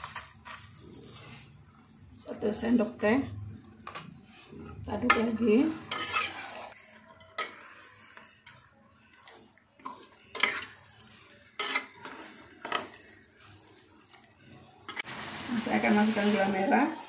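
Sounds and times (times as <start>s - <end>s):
metal spatula scraping a wok: 3.8s - 13.6s.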